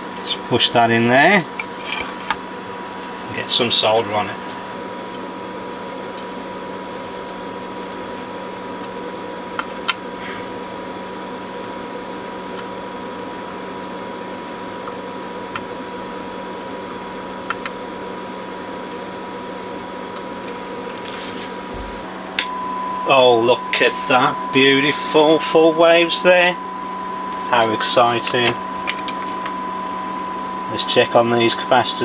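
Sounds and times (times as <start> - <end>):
fan whirr: 0.0 - 32.0
faint steady tone: 22.4 - 32.0.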